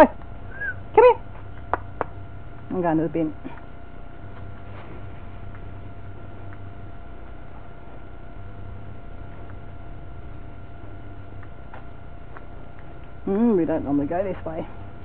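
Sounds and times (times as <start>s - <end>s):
electrical hum and hiss: 0.0s - 15.0s
high whine: 0.0s - 15.0s.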